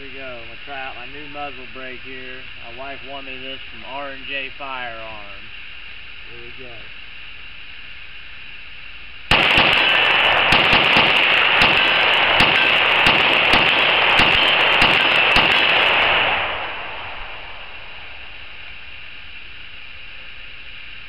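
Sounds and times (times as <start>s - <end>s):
rapid rifle gunfire: 9.3s - 17.6s.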